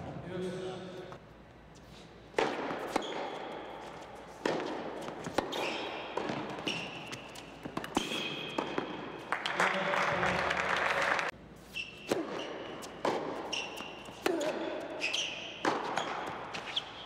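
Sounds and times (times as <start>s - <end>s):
shoes squeaking on court: 1.7s - 9.2s, 11.5s - 17.0s
racquet hitting tennis ball: 2.3s - 9.4s, 11.8s - 17.0s
ball bouncing: 4.4s - 9.1s, 12.1s - 14.6s, 15.6s - 16.8s.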